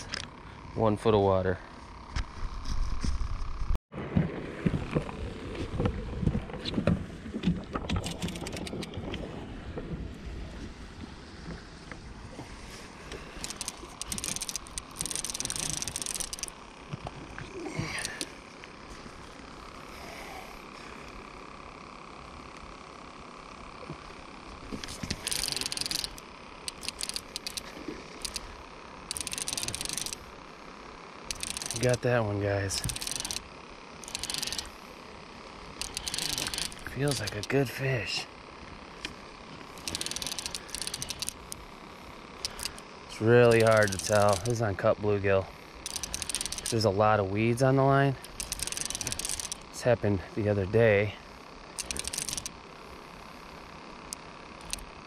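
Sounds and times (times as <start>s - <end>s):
sharp clicks: 7.8s - 9.0s, 13.4s - 17.1s, 24.7s - 28.5s, 29.1s - 30.3s, 31.2s - 32.0s, 32.8s - 34.7s, 35.7s - 37.6s, 39.0s - 41.6s, 42.4s - 44.6s, 45.8s - 46.9s, 48.2s - 49.6s, 51.7s - 52.6s, 54.0s - 54.9s.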